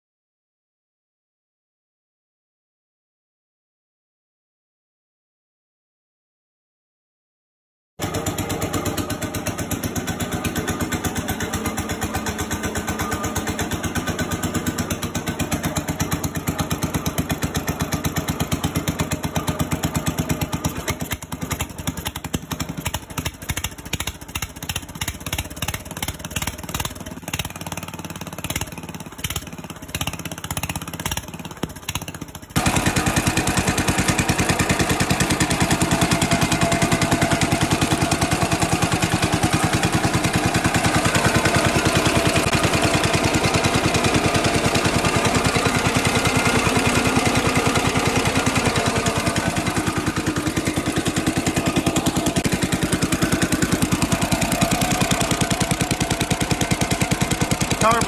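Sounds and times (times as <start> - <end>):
single-cylinder engine running: 8.0 - 58.0.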